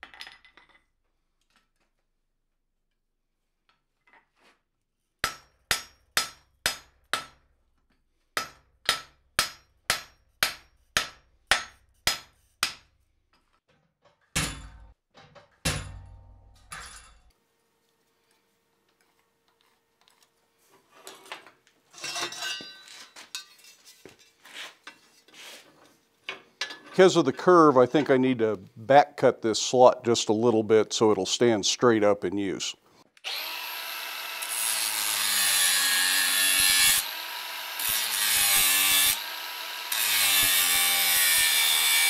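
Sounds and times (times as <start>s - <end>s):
hammer ringing on hot steel: 5.2s - 7.3s
metal parts clinking and scraping: 21.0s - 25.3s.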